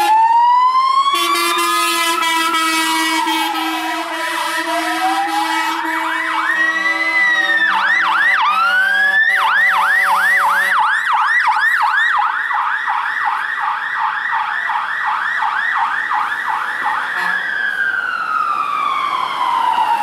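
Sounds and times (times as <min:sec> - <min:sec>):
fire engine siren wailing: 0:00.0 - 0:20.0
siren yelp: 0:00.0 - 0:20.0
air horns chord: 0:01.2 - 0:10.8, 0:17.2 - 0:17.4.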